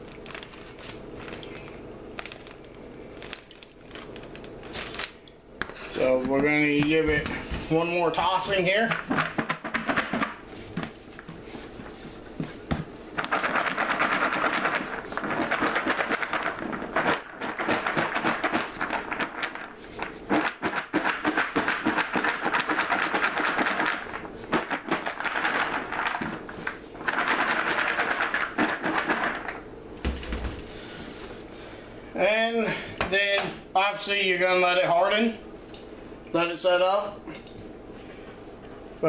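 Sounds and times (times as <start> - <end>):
cereal rattling in shaken bowl: 8.2 - 10.4, 13.1 - 29.6.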